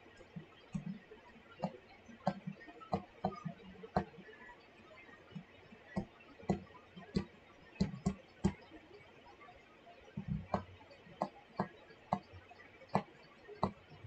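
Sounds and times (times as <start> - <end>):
stylus tapping on screen: 2.2 - 4.1, 6.0 - 8.6, 10.2 - 12.3.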